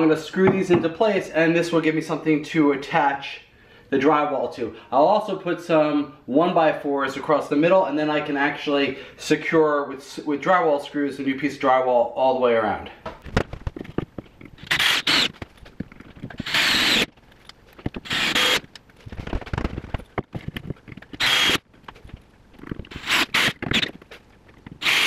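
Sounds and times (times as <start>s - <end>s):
handling clicks and knocks: 13.1s - 14.6s, 15.3s - 16.4s, 17.1s - 22.9s
cordless drill driving screws: 14.6s - 15.4s, 16.4s - 17.1s, 18.0s - 18.7s, 21.2s - 21.6s, 22.9s - 23.9s, 24.8s - 25.0s.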